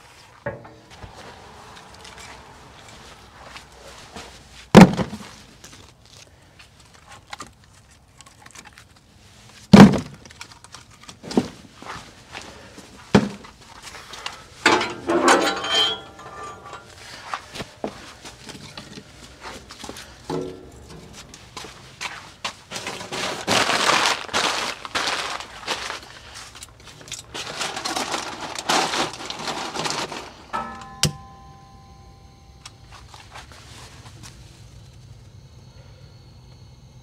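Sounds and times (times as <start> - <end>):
wooden logs knocking and clattering: 4.7 - 5.9, 9.7 - 11.6, 13.1 - 13.6.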